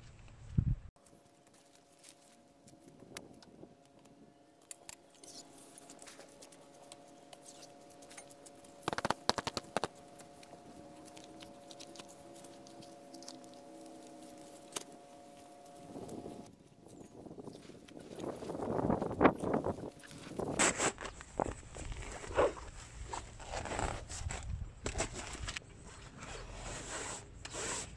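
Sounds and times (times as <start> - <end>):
faint steady hum: 1.0 - 16.8.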